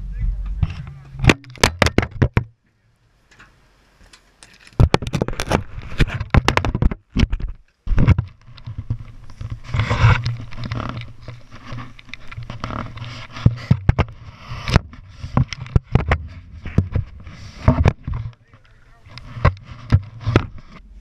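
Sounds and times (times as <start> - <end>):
steady low hum: 0.0 - 4.0
camera handling knocks and scrapes: 4.5 - 20.8.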